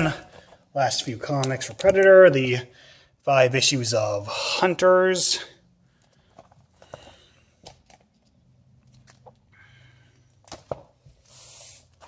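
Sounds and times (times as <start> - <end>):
short sliding hiss: 11.2 - 11.9.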